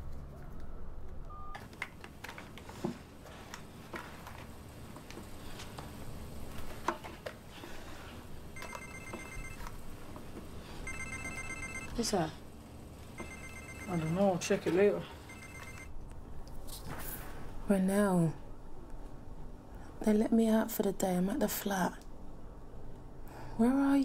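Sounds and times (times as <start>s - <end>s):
pulsing electronic ringtone: 8.6s - 9.7s, 10.8s - 12.0s, 13.2s - 14.4s, 15.3s - 15.9s.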